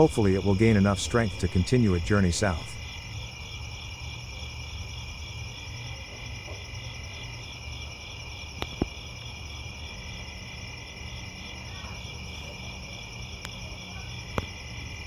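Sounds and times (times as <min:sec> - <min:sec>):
crickets and insects chirping: 0:00.0 - 0:15.0.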